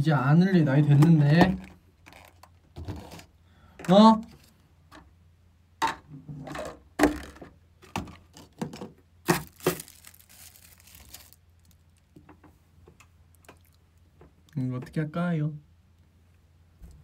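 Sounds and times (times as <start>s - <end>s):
plastic containers crinkling and clacking: 0.8s - 4.0s, 5.8s - 14.3s.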